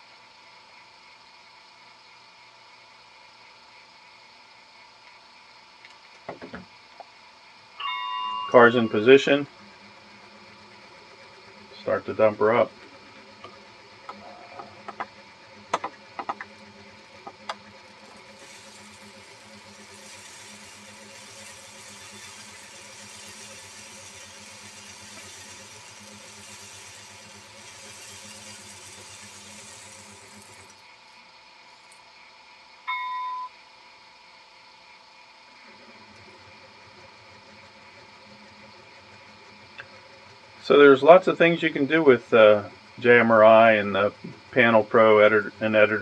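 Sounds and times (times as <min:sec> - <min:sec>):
faint high whir: 0:00.0 - 0:46.0
model machine mechanical running: 0:07.4 - 0:31.2, 0:35.5 - 0:46.0
high electronic beep: 0:07.8 - 0:09.1, 0:32.9 - 0:33.6.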